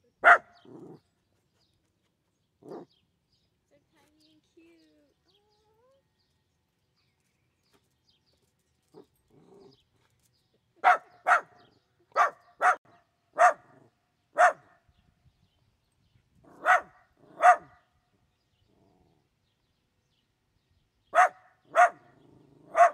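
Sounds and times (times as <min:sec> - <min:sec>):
dog barking: 0:00.2 - 0:01.0, 0:10.8 - 0:14.7, 0:16.5 - 0:17.8, 0:21.2 - 0:22.9.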